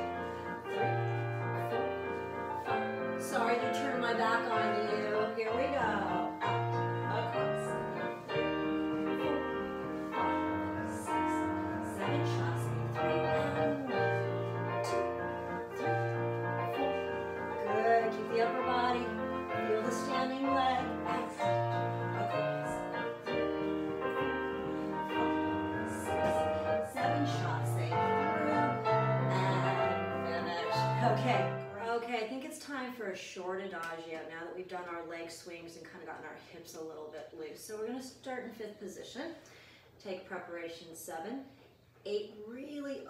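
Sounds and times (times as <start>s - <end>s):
piano music with steady beat: 0.0s - 31.9s.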